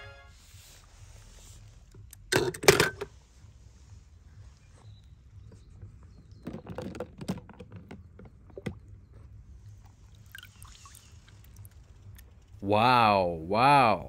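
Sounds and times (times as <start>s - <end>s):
low steady rumble: 0.3s - 6.4s, 7.5s - 14.0s.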